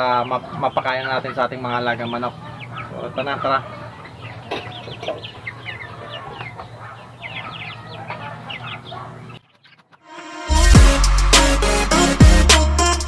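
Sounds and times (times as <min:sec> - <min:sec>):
chickens clucking: 0:00.0 - 0:10.4
loud music: 0:10.1 - 0:13.0.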